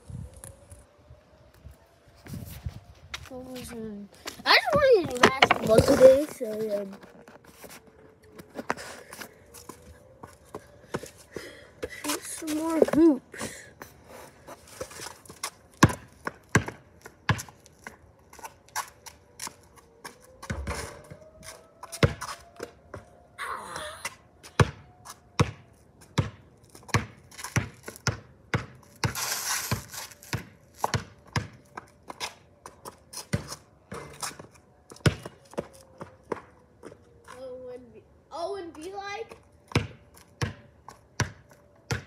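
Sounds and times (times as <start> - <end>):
distant warning siren: 0.0 - 42.0
basketball bouncing on concrete: 4.6 - 6.4, 15.4 - 18.0, 20.4 - 21.2, 21.9 - 22.3, 24.5 - 24.8, 25.4 - 31.8, 32.8 - 35.7, 39.7 - 42.0.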